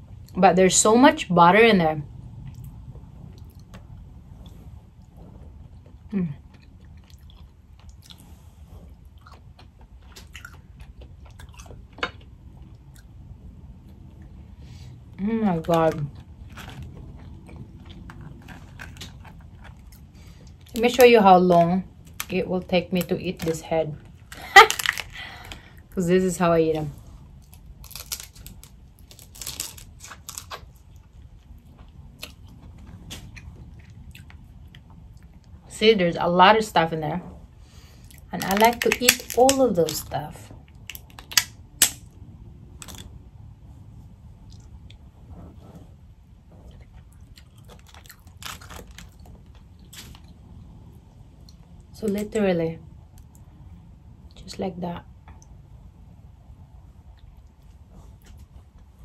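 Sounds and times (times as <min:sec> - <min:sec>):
chewing and biting: 0:02.4 - 0:13.3, 0:15.8 - 0:22.4, 0:27.3 - 0:35.6, 0:46.6 - 0:50.6
shells cracked and peeled: 0:22.0 - 0:25.8, 0:27.4 - 0:30.8, 0:38.1 - 0:42.2, 0:42.8 - 0:43.2, 0:47.7 - 0:50.3.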